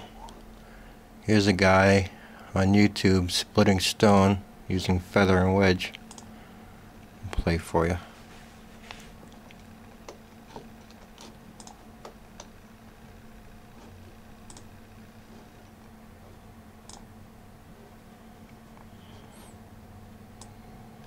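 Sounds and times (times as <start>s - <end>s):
steady low hum: 0.0s - 21.0s
computer mouse clicks: 5.9s - 6.3s, 9.5s - 12.6s, 13.8s - 14.7s, 16.8s - 17.1s.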